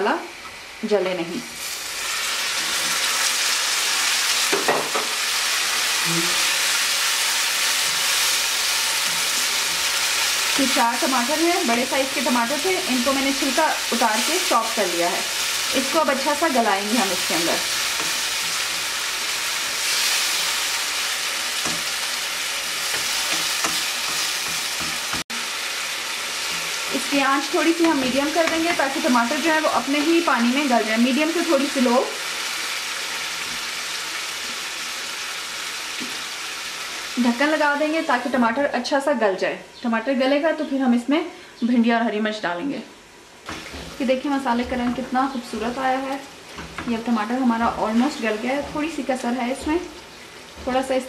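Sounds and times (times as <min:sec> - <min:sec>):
tomatoes sizzling in hot oil: 0:00.1 - 0:38.7, 0:43.1 - 0:51.0
spatula stirring in a wok: 0:06.0 - 0:10.6, 0:15.2 - 0:25.2.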